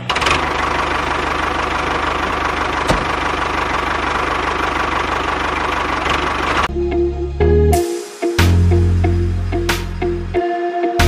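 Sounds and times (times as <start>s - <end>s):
engine idling with knocking rhythm: 0.0s - 6.7s.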